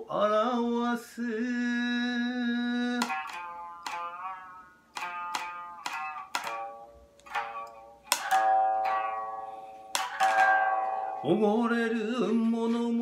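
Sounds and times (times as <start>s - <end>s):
lute plucked with plectrum: 2.6s - 13.0s.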